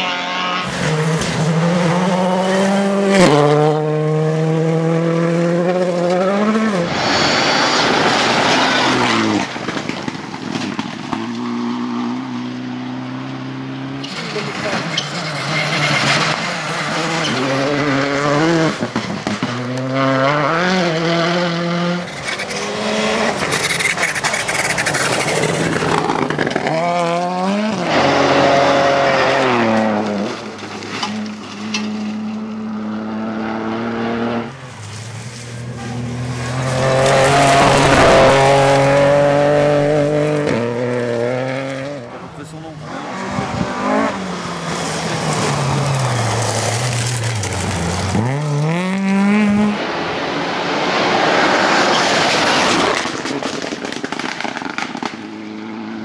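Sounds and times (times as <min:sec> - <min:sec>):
rally car engines revving past: 0:00.0 - 0:56.0.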